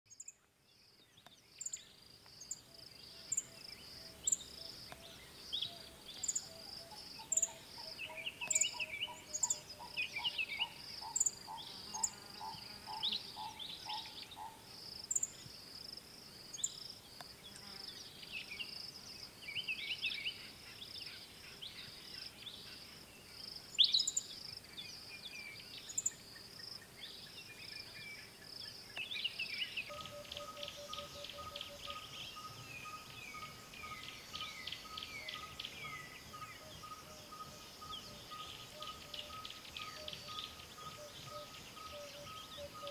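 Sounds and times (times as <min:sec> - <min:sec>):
insect chorus pulsing trill: 0:01.6 - 0:17.2, 0:23.7 - 0:42.9
birds calling: 0:02.4 - 0:15.3, 0:29.0 - 0:42.9.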